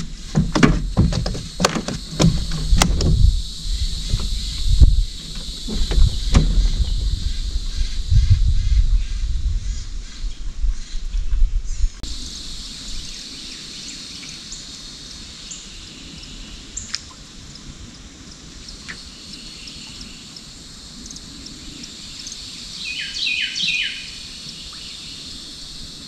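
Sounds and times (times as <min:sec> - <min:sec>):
low rumble on microphone: 0:00.0 - 0:13.2
birds chirping: 0:00.0 - 0:25.4
high insect hum: 0:00.0 - 0:26.0.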